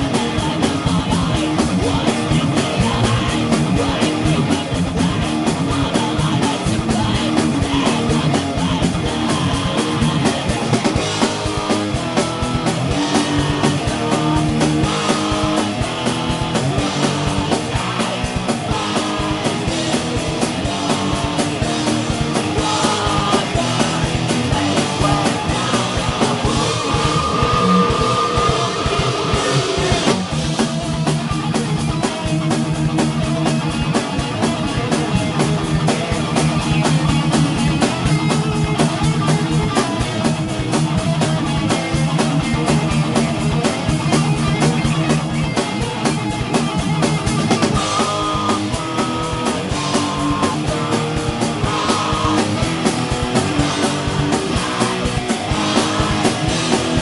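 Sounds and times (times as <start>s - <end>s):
drum kit with cymbals: 0.0s - 57.0s
electric guitar: 0.0s - 57.0s.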